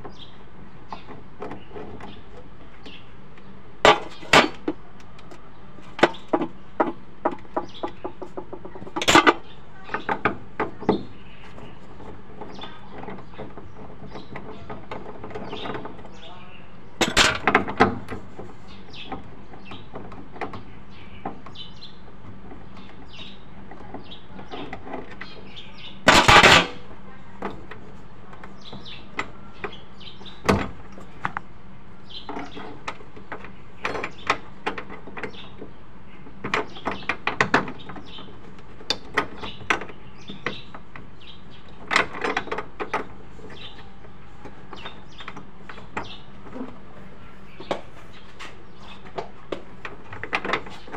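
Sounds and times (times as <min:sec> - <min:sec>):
metal clattering: 0:17.0 - 0:20.4, 0:26.0 - 0:26.8.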